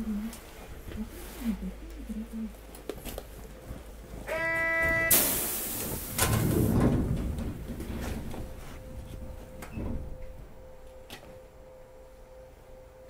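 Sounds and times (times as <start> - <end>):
air hiss burst: 5.1 - 6.2.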